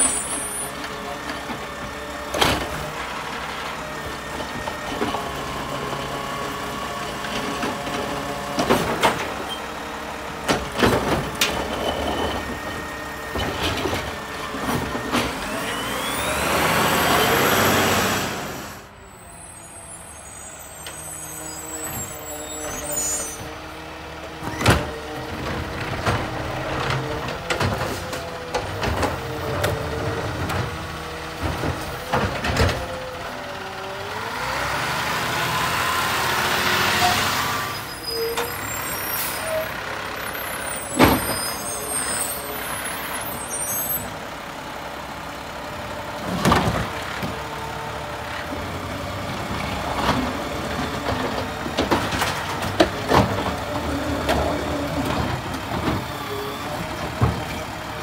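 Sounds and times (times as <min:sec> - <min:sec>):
diesel engine running: 0:00.0 - 0:58.0
engine revving with whine: 0:15.2 - 0:18.9.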